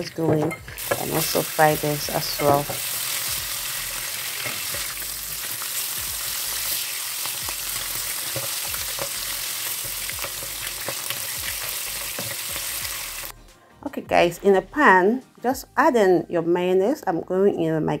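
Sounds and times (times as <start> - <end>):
chicken wings sizzling in oil: 0.0 - 13.3.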